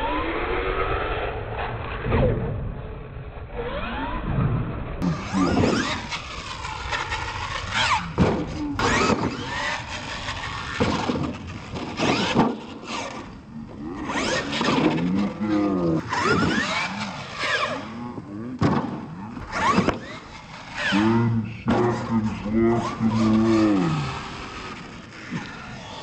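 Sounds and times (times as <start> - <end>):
toy truck motors whining: 5.0 - 26.0
truck landing thuds: 8.2 - 9.4, 18.6 - 20.2.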